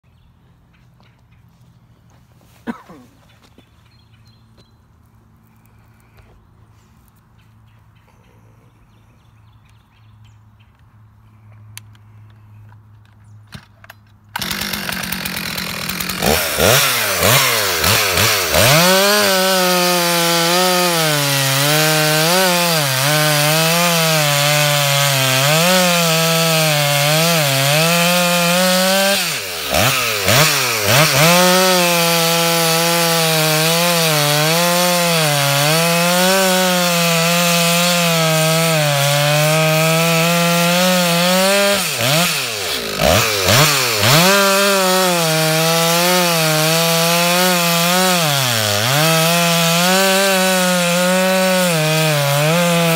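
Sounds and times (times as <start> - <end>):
chainsaw cutting wood: 14.4 - 52.9.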